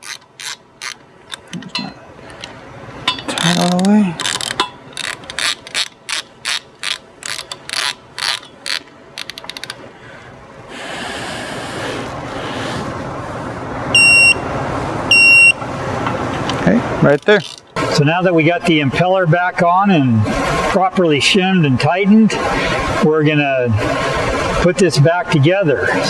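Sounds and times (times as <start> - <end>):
torque wrench ratchet clicking: 0.0 - 1.6, 3.3 - 9.8, 17.1 - 17.7
short high beeps: 14.0 - 14.4, 15.1 - 15.6.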